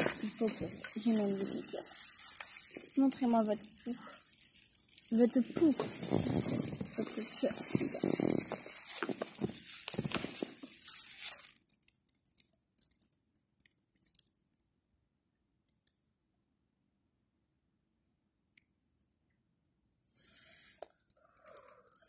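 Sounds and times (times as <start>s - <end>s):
rustling and crinkling handling noise: 0.0s - 14.6s
faint clicks: 20.8s - 22.0s.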